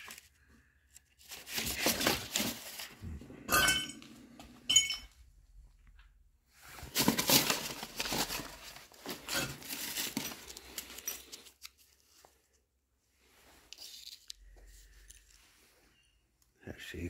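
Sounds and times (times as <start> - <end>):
paper rustling and crinkling: 0.0 - 3.0, 6.6 - 15.6.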